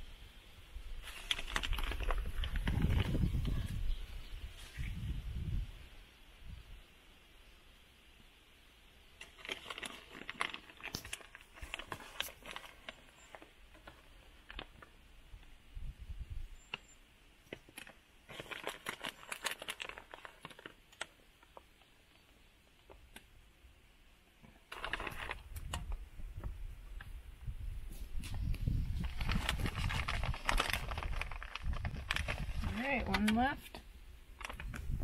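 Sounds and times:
plastic bag crinkling: 1.0 - 3.5, 9.2 - 14.9, 17.7 - 21.6, 24.6 - 26.0, 28.8 - 33.7, 34.4 - 35.0.

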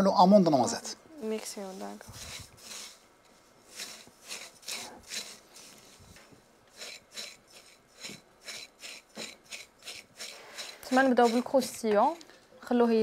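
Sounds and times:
spatula scraping dry mixture in bowl: 1.6 - 3.0, 3.6 - 6.0, 6.7 - 12.3.

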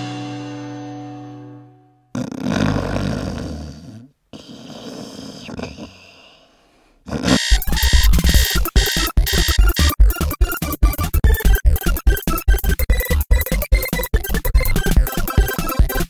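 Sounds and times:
person snoring: 2.1 - 7.5
alarm clock beeping: 7.3 - 16.0.

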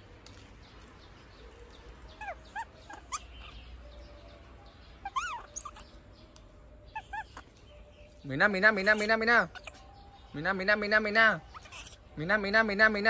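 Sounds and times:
baby monkey high calls: 2.1 - 3.7, 5.0 - 6.0, 6.9 - 7.6, 8.8 - 9.9, 11.4 - 12.1.

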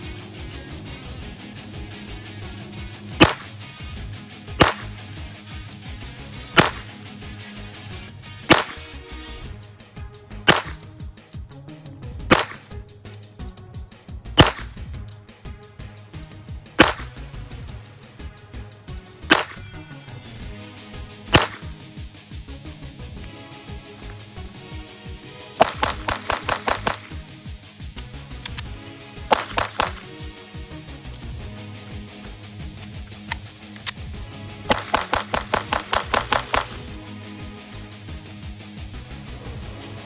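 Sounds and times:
background music: 0.0 - 40.0
pistol shots: 3.1 - 3.6, 4.6 - 5.1, 6.6 - 6.9, 8.4 - 8.9, 10.4 - 10.9, 12.3 - 12.8, 14.4 - 14.8, 16.8 - 17.2, 19.2 - 19.8, 21.3 - 21.8, 25.6 - 27.2, 29.3 - 30.2, 34.7 - 36.9.

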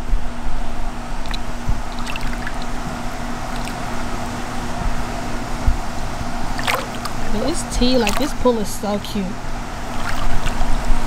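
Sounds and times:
constant low hum: 0.0 - 11.0
pool water washing: 0.6 - 11.0
faint small splashes: 1.2 - 4.4, 6.5 - 7.4, 8.0 - 8.4, 9.9 - 10.6.

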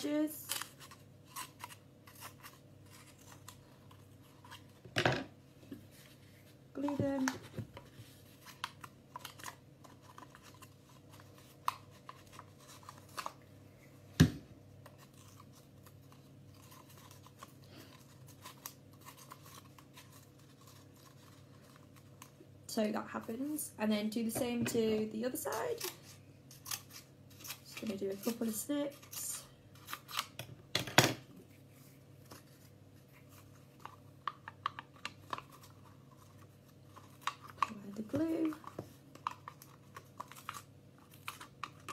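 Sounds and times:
paper rustling: 14.8 - 22.4.

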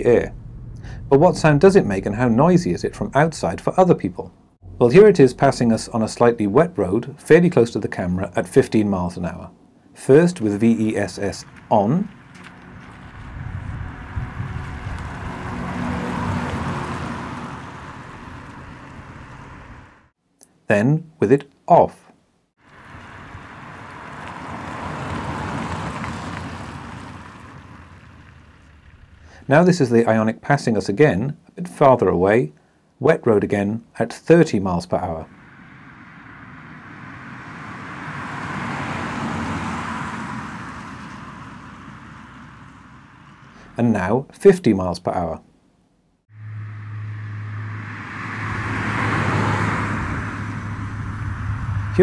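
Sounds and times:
low electronic drone: 0.0 - 3.6, 10.7 - 16.4, 46.3 - 52.0
tyres hissing on wet road: 10.8 - 20.1, 22.6 - 29.5, 35.3 - 43.8, 46.6 - 52.0.

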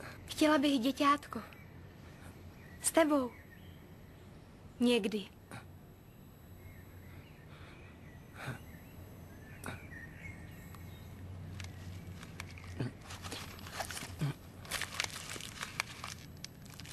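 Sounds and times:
low outdoor hum: 0.0 - 16.9
cigarette pack crinkling: 11.4 - 16.9.

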